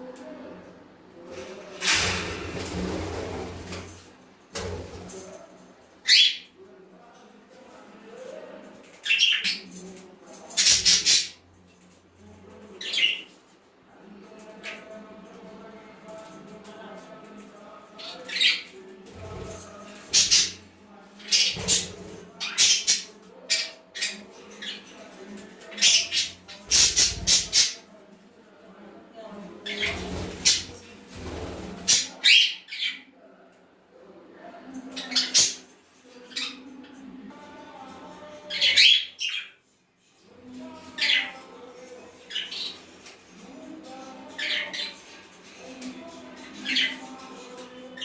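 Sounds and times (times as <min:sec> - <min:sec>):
budgerigars chirping and squawking: 0:10.6 - 0:11.4, 0:25.8 - 0:27.8.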